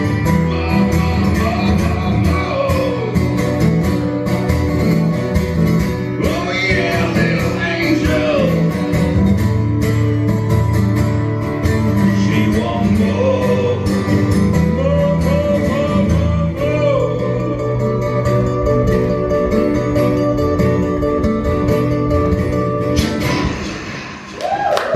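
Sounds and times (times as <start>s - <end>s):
acoustic guitars strumming: 0.0s - 24.4s
man singing into a microphone: 0.5s - 3.6s, 6.1s - 9.0s, 11.9s - 18.2s.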